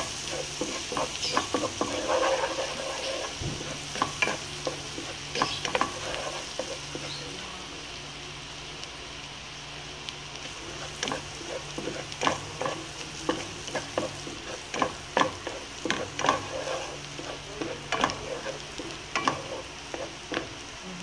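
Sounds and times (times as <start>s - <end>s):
garlic sizzling in butter: 0.0s - 21.0s
wooden spoon knocking pan: 0.6s - 7.1s.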